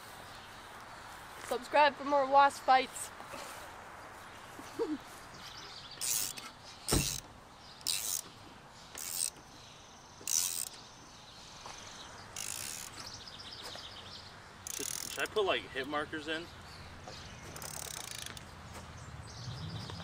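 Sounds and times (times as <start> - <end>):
dull thud: 6.9 - 7.3.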